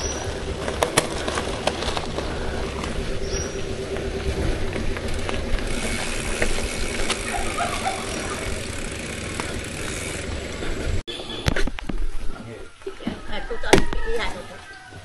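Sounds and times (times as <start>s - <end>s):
bicycle rattling: 0.0s - 11.1s
wind and tyres rumbling: 0.0s - 15.0s.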